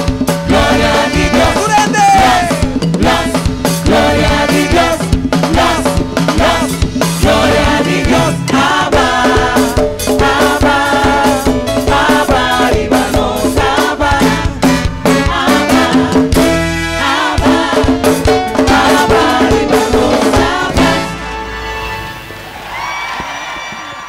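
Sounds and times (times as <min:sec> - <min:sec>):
people singing together: 0:00.0 - 0:21.3
latin band with percussion: 0:00.0 - 0:24.0.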